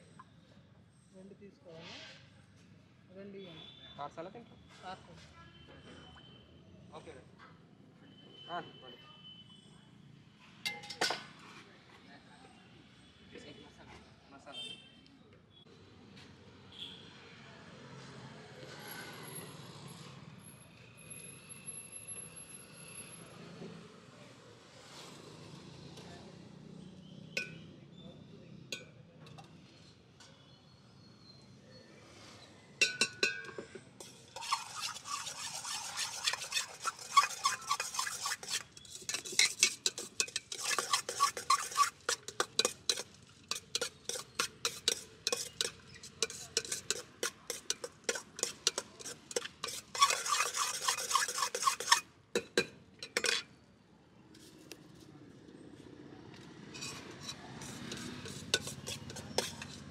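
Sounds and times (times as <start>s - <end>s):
metal spoon scraping steel bowl: 32.8s - 53.6s, 56.7s - 59.9s.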